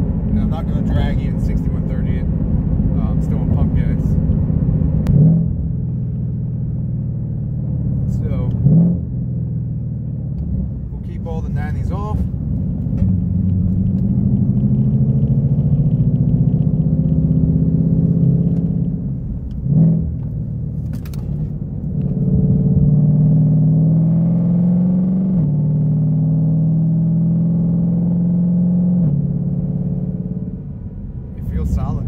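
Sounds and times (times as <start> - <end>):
car engine accelerating: 0.0 - 32.0
gearbox upshift: 19.4 - 22.2.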